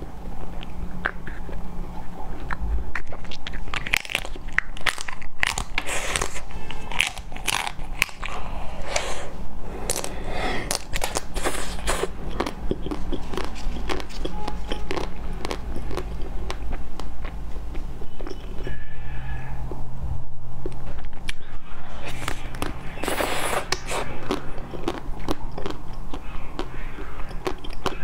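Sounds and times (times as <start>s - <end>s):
crunchy chewing of ice cream: 0.0s - 19.8s, 20.5s - 28.0s.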